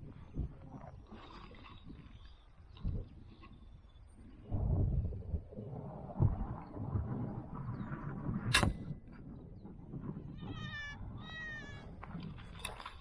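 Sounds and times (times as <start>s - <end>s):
sharp click: 8.5s - 8.9s.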